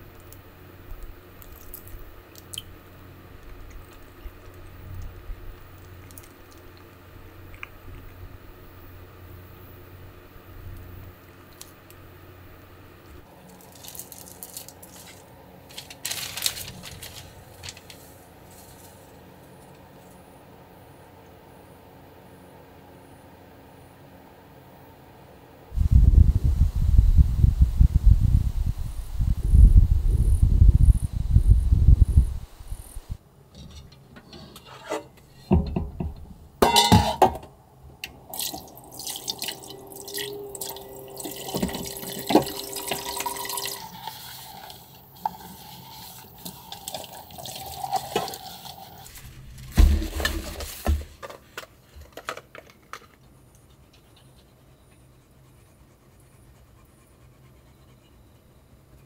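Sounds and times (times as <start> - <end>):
wind buffeting microphone: 25.8 - 33.2
pot clattering: 36.6 - 37.4
thump: 49.7 - 51.1.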